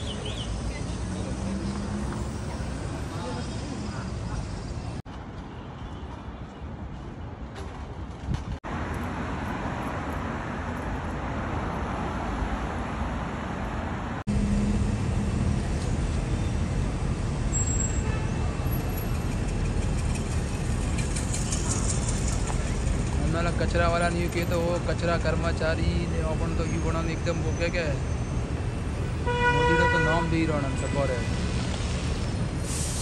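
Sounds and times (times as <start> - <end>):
street traffic rumble: 0.0 - 33.0.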